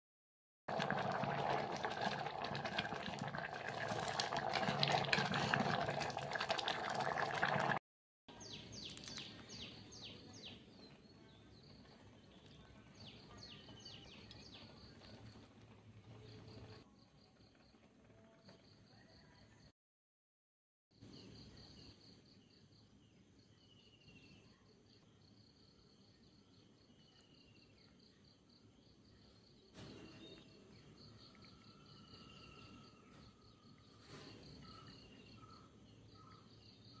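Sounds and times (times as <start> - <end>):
lentils bubbling in a pot: 0.7 - 7.8, 8.5 - 9.6, 11.6 - 18.1.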